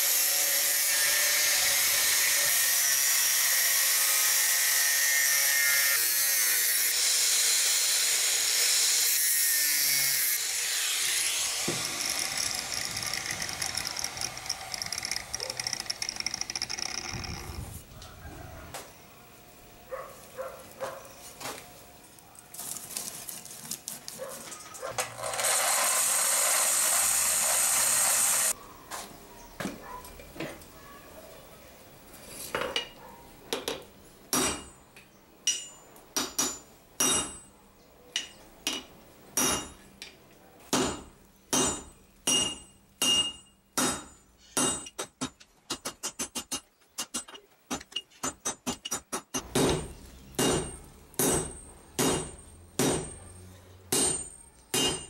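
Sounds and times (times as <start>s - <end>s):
hammer striking steel on anvil: 34.3s - 34.8s, 35.4s - 37.5s, 38.2s - 39.9s, 40.7s - 55.0s.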